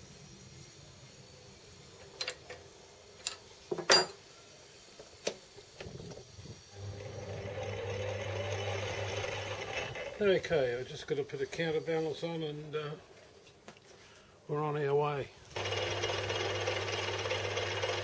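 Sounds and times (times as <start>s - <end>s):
lathe motor humming: 6.7s - 10.5s, 15.5s - 18.0s.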